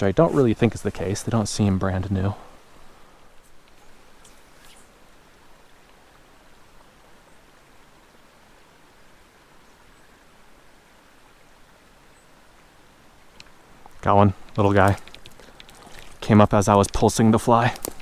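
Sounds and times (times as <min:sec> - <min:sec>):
creek water trickling: 0:00.0 - 0:18.0
light ticks: 0:13.3 - 0:17.1.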